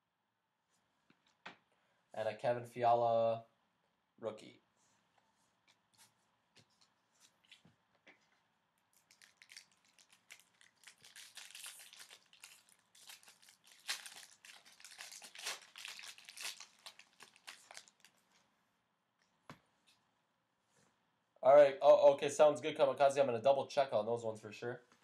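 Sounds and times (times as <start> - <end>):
foil wrapper tearing and crinkling: 8.9 - 18.2.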